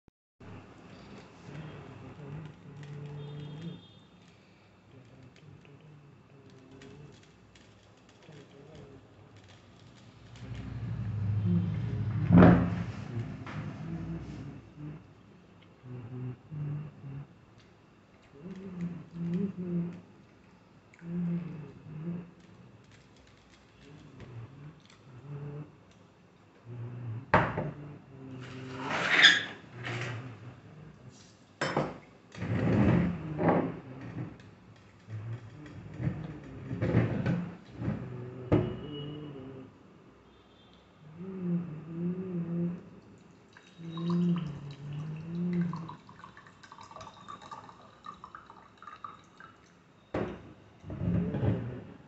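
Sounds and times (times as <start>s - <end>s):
glugging from a flask: 42.9s - 49.7s
tea pouring into a glass: 43.1s - 49.9s.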